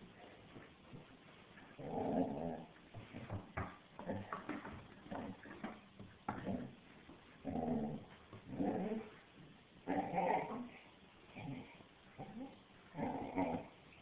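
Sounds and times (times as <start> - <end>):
puppy growling in play: 1.8 - 3.3, 7.4 - 9.2, 9.8 - 13.8.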